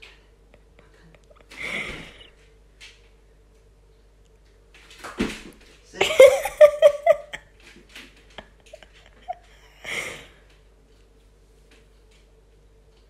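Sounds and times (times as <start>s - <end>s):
faint steady hum: 0.0s - 13.0s
person laughing: 6.0s - 7.4s, 8.4s - 10.3s
person breathing: 9.5s - 10.4s.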